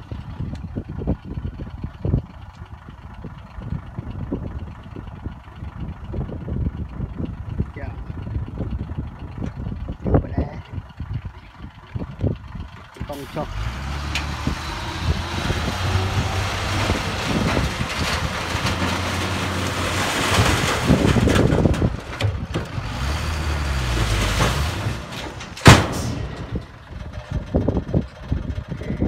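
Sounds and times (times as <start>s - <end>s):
diesel truck engine running: 0.0s - 29.0s
sand and soil sliding: 15.5s - 21.4s
sharp bang: 25.6s - 26.6s.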